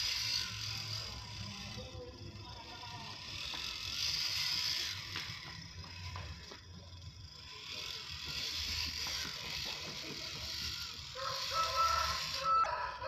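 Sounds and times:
toy car motor whirring and clicking: 0.0s - 13.0s
rooster crowing: 11.1s - 13.0s.

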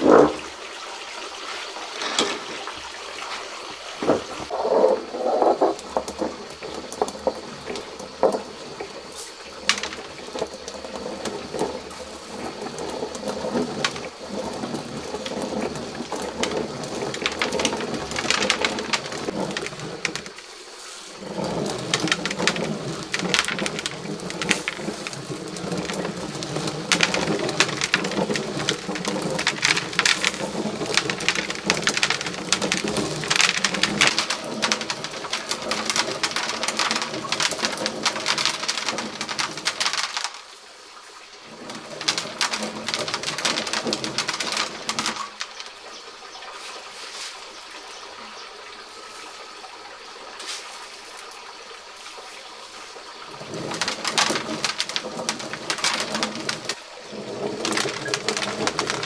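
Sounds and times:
millstone grinding: 0.0s - 0.5s, 1.9s - 2.8s, 4.0s - 20.5s, 21.1s - 40.4s, 41.5s - 45.8s, 53.4s - 59.0s
kernels crackling as crushed: 1.9s - 2.8s, 4.0s - 40.6s, 41.5s - 46.0s, 53.3s - 59.0s.

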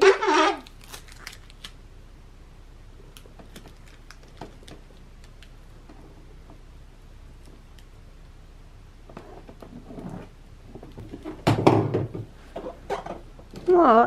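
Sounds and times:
plastic sheet rustling: 0.0s - 1.8s.

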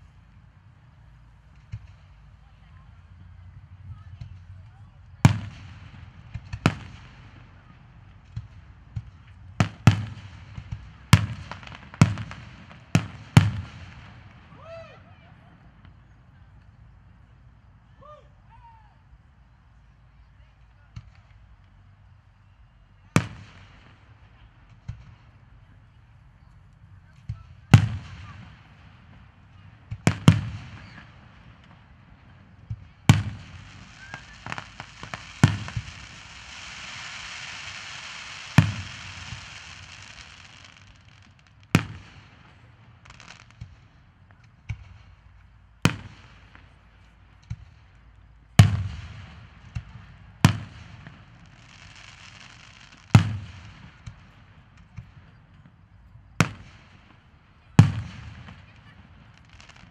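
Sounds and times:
fireworks booming: 3.6s - 14.9s, 27.2s - 59.9s.

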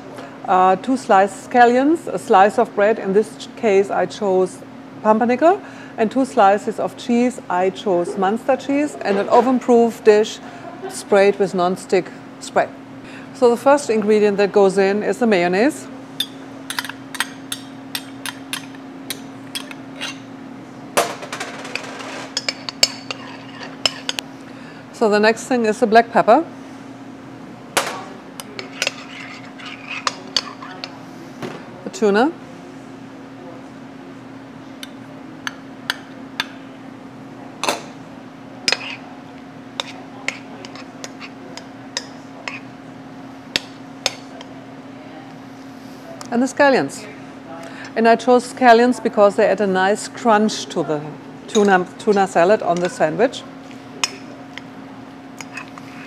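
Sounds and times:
steady low hum: 0.0s - 56.0s
spoon scraping bowl: 21.7s - 24.2s, 28.4s - 31.0s, 38.7s - 39.1s, 39.8s - 42.7s.

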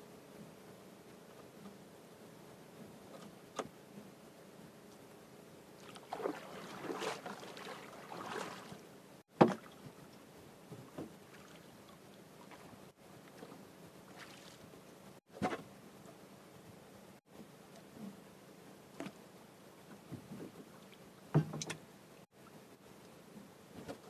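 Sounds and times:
water and handling noise: 5.8s - 18.2s.

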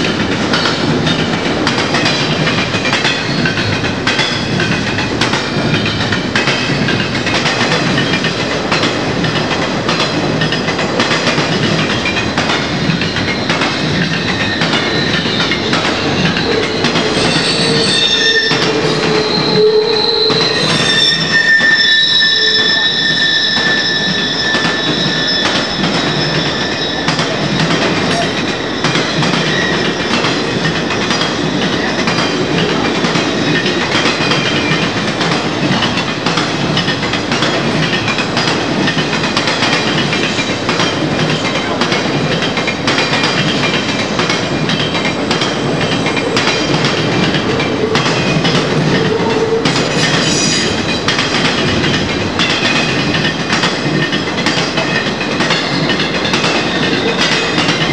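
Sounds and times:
train rumble: 0.0s - 57.9s
high wheel squeal: 12.7s - 32.2s, 45.9s - 51.3s.

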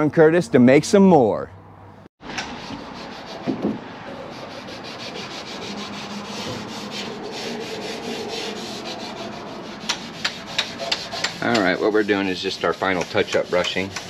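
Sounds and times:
abrasive pad scrubbing metal: 2.3s - 14.0s
knock: 3.5s - 3.8s.

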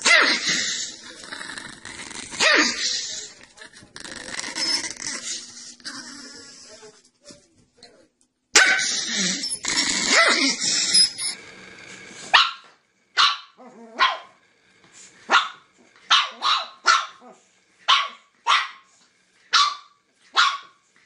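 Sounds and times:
dog barking: 8.6s - 8.9s, 12.3s - 14.4s, 15.3s - 17.2s, 17.9s - 18.9s, 19.5s - 20.8s.

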